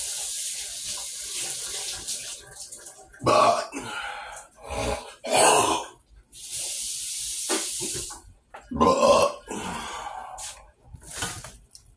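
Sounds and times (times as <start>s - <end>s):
man burping loudly: 3.2s - 3.9s, 4.8s - 6.0s, 8.7s - 9.8s.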